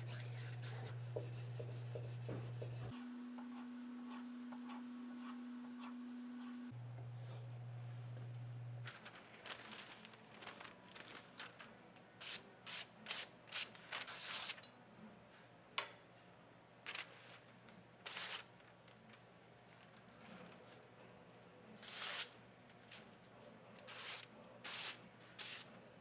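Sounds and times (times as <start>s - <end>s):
knife slicing newspaper: 18.0s - 18.5s, 21.8s - 22.3s, 23.9s - 25.7s.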